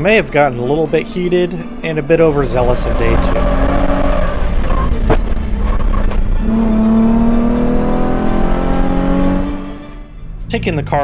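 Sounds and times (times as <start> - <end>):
car engine accelerating: 0.0 - 11.0
car knocking: 3.0 - 7.7.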